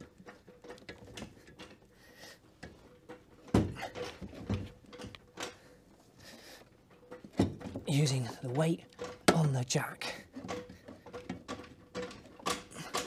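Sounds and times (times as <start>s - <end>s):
metallic clunks and knocks: 2.6s - 5.8s, 6.8s - 8.0s, 10.2s - 13.0s.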